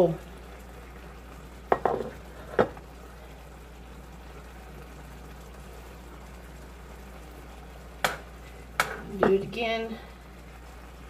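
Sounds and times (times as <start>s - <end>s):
water simmering on stove: 0.0s - 11.0s.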